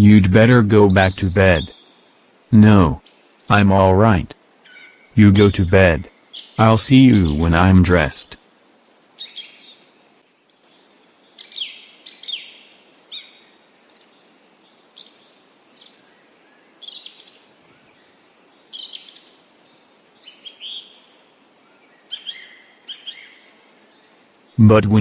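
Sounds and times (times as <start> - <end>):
birds chirping and whistling: 0.0 - 2.1.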